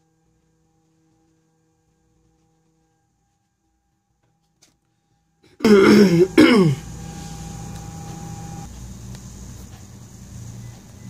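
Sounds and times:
low room hum: 0.0s - 11.0s
person clearing throat: 5.5s - 6.9s.

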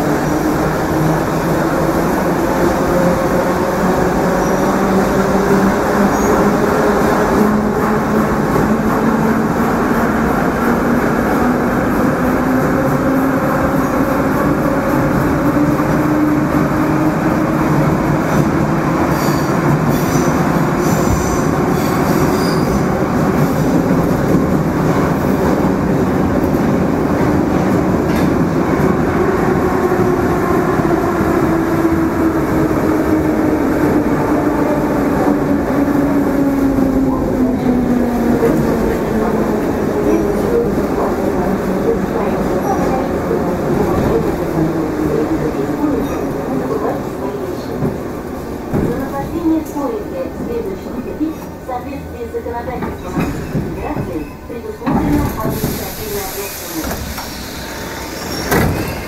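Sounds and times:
train wheels rumbling: 0.0s - 59.0s
high squeal: 57.3s - 59.0s.

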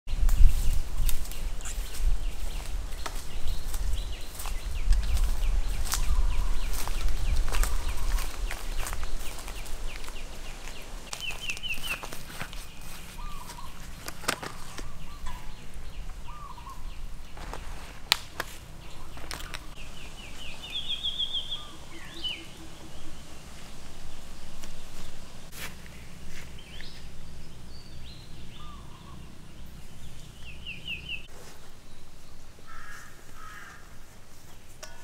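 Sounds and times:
birds trilling and chirping: 0.1s - 35.0s
low outdoor rumble: 12.1s - 31.3s.

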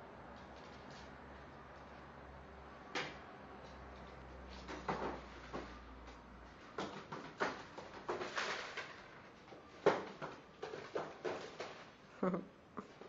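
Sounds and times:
animals scuffling on wooden floor: 3.6s - 11.9s.

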